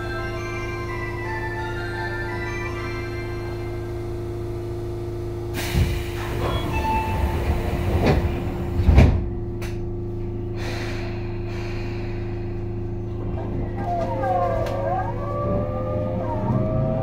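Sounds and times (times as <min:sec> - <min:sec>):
subway car hum: 0:00.0 - 0:17.0
sliding doors closing: 0:05.6 - 0:09.3.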